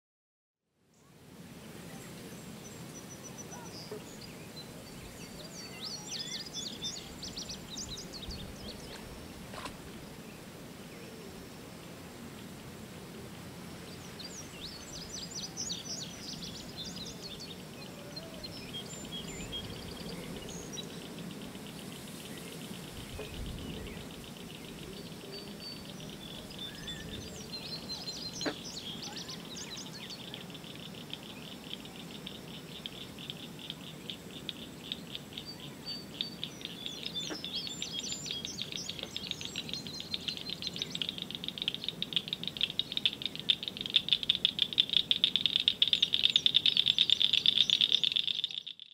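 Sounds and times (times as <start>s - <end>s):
birds chirping and calling: 14.0s - 48.8s.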